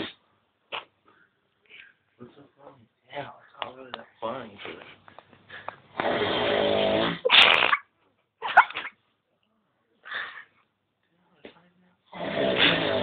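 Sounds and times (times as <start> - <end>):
man snoring: 5.9 - 7.2, 12.1 - 13.0.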